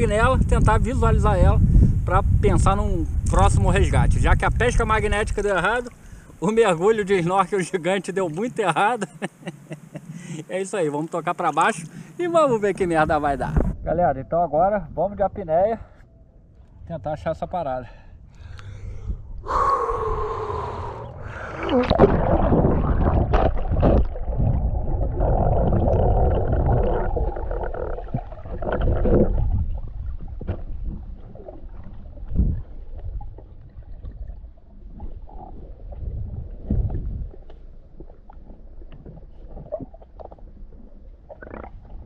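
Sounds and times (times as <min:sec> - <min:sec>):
low underwater rumble: 0:16.0 - 0:42.0
rushing water and bubbles: 0:20.5 - 0:42.0.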